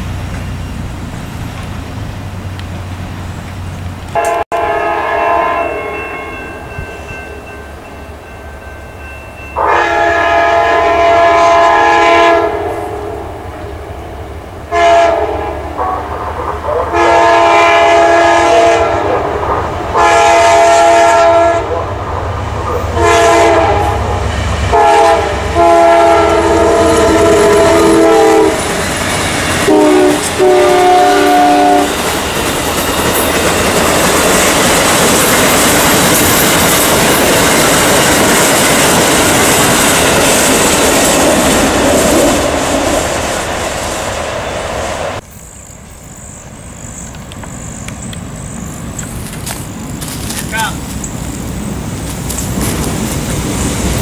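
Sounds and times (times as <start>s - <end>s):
train horn blasts: 4.2s - 7.1s, 9.6s - 13.5s, 14.7s - 21.8s, 22.8s - 28.7s, 29.6s - 32.0s
train wheels clacking on rails: 26.2s - 44.6s.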